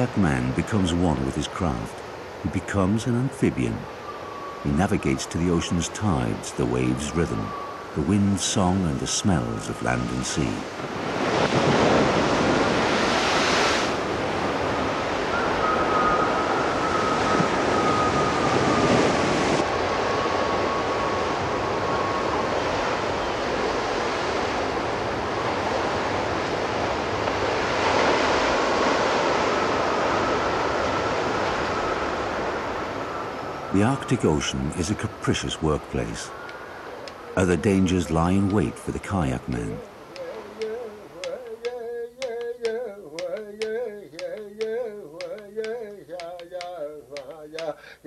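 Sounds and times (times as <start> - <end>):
breaking waves: 0.0 - 46.6
faint thin whistle: 4.0 - 4.7, 7.0 - 7.8, 15.3 - 19.0.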